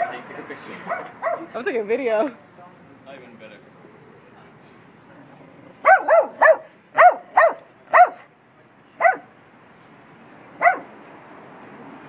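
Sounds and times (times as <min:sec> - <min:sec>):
dog barking: 0:00.9 - 0:01.5, 0:05.8 - 0:08.3, 0:09.0 - 0:09.3, 0:10.6 - 0:11.0.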